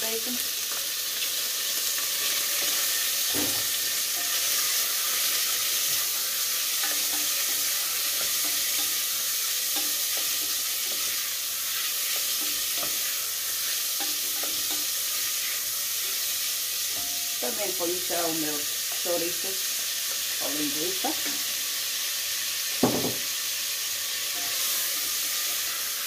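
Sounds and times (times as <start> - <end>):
bacon sizzling in a pot: 0.0 - 26.0
spoon stirring and knocking pot: 6.7 - 11.2, 12.0 - 13.1, 14.0 - 15.1.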